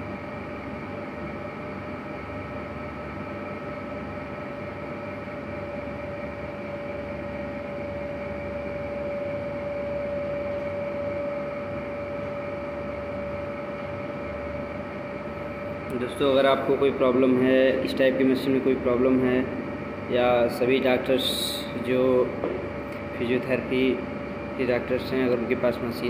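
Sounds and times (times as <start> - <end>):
mechanical hum with whine: 0.0 - 26.0.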